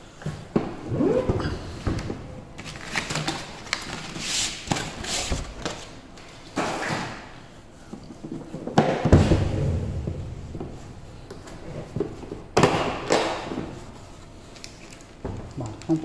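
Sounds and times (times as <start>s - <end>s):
heavy thump: 9.0s - 11.7s.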